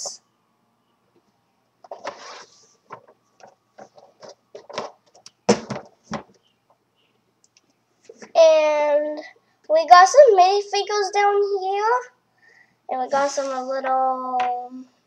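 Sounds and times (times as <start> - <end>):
cardboard box scraping and rustling: 2.0 - 2.7
box knocking down: 4.7 - 6.3.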